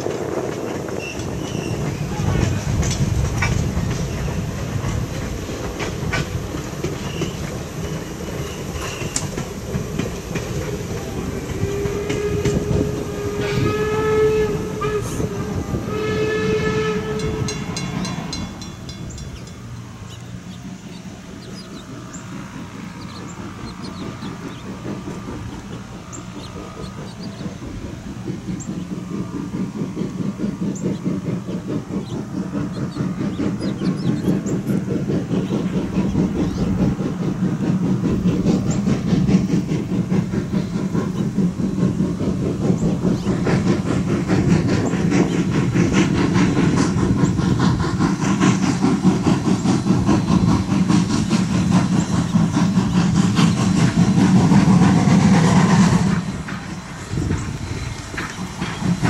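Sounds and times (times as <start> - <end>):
steam locomotive exhaust rumble: 0.0 - 59.0
steam whistle blasts: 11.1 - 18.5.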